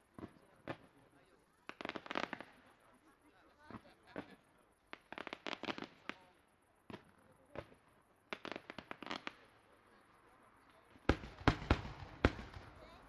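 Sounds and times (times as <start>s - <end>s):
fireworks pops: 0.0s - 2.7s, 3.6s - 9.5s, 10.6s - 12.8s
fireworks crackling: 0.0s - 13.0s
loud fireworks bangs: 10.8s - 13.0s.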